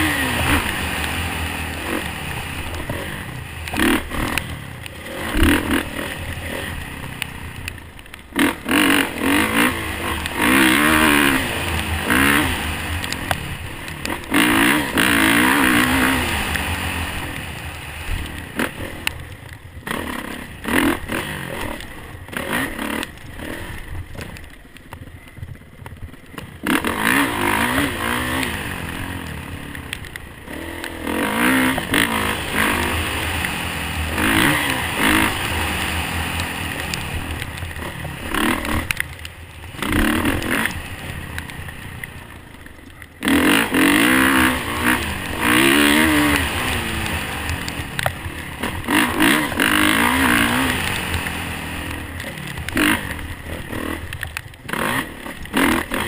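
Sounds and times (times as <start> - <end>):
motocross bike engine revving: 0.0 - 24.6, 26.3 - 56.0.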